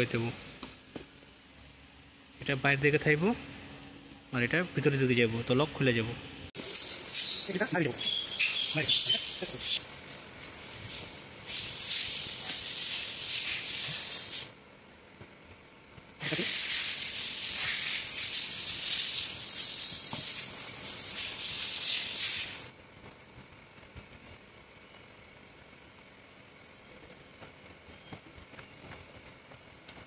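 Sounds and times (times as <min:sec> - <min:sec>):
loud high-pitched hiss: 0:06.6 - 0:14.5, 0:16.2 - 0:22.7.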